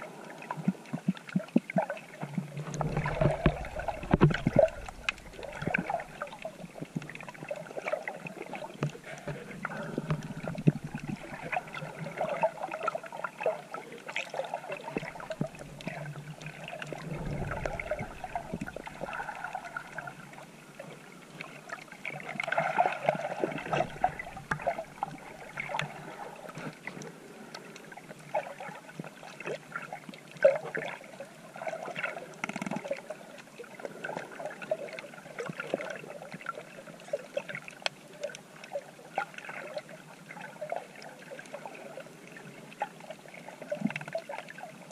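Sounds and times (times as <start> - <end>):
water sloshing and gurgling: 0.0 - 44.9
small ticks and crackles: 0.5 - 12.2, 32.0 - 33.5, 43.6 - 44.6.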